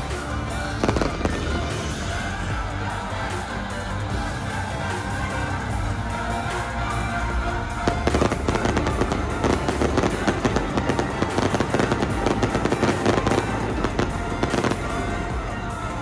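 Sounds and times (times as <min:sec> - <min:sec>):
background music: 0:00.0 - 0:16.0.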